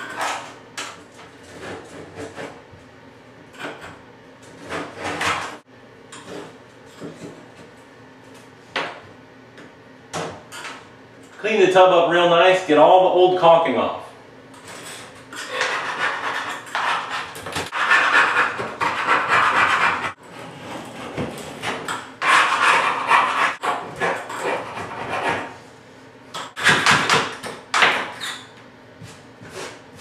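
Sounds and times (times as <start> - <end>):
metal scraper rasping out caulk: 15.4 - 25.5.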